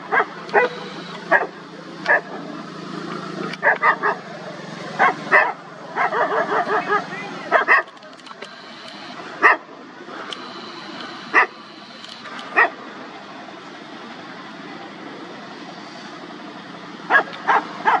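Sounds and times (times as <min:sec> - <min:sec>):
dogs barking: 0:00.0 - 0:02.4, 0:03.5 - 0:04.3, 0:05.0 - 0:08.0, 0:09.4 - 0:09.7, 0:11.3 - 0:11.6, 0:12.5 - 0:12.8, 0:17.1 - 0:18.0
steady background noise: 0:00.0 - 0:18.0.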